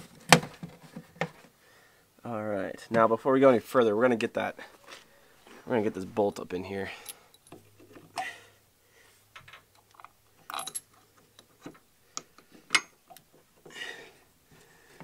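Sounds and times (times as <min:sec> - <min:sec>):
small metal clicks and clinks: 0:09.7 - 0:11.5.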